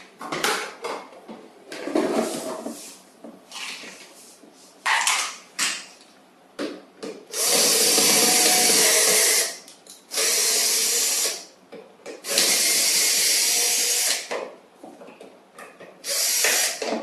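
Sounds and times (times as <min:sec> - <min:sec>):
cordless drill driving screw: 0:07.3 - 0:11.4, 0:12.2 - 0:14.3, 0:16.1 - 0:16.9.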